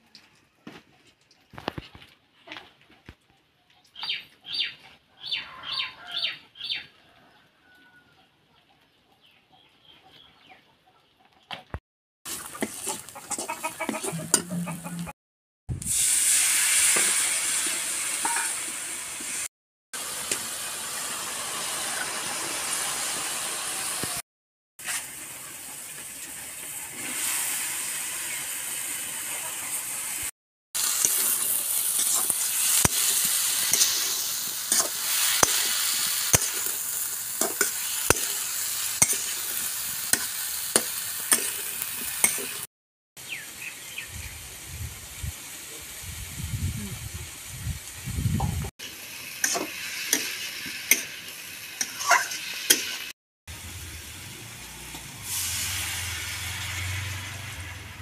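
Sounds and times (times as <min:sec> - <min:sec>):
oil sizzling in a wok: 0:12.3 - 0:14.5, 0:15.7 - 0:24.2, 0:24.8 - 0:58.0
metal spatula scraping wok: 0:12.3 - 0:15.1, 0:16.9 - 0:18.8, 0:30.8 - 0:42.7, 0:49.4 - 0:53.1.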